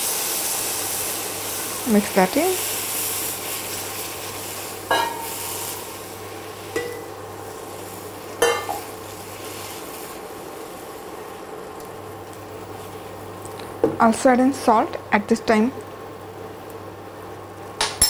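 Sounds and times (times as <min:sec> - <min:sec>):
wet mixture sizzling in pan: 0:00.0 - 0:14.9.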